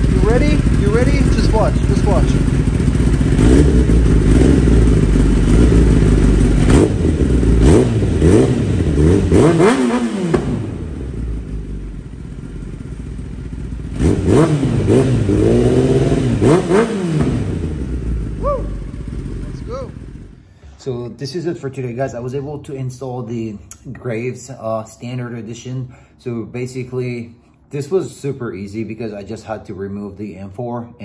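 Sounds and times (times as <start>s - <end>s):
motorcycle engine revving: 0.0s - 20.5s.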